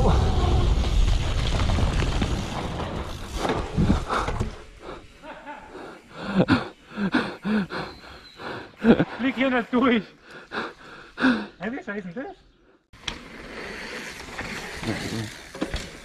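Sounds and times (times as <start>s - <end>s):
wind buffeting: 0.0s - 4.8s
bike trail rumble: 0.0s - 16.0s
person panting: 3.8s - 9.2s, 10.2s - 11.6s.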